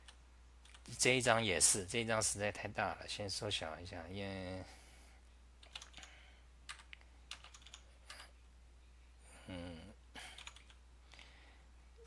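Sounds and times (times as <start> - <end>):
keyboard keystrokes: 5.6 - 6.1, 6.7 - 8.2.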